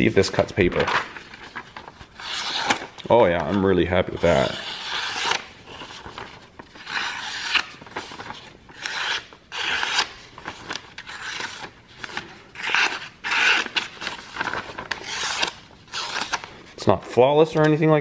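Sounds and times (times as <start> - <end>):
knife slicing paper: 4.2 - 16.5.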